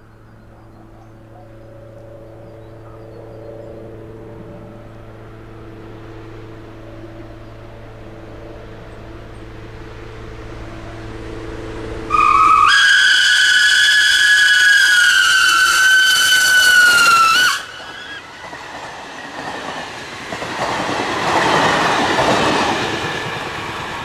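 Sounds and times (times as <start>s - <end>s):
steam locomotive rumble: 0.0s - 24.0s
steam whistle blowing: 11.7s - 18.3s.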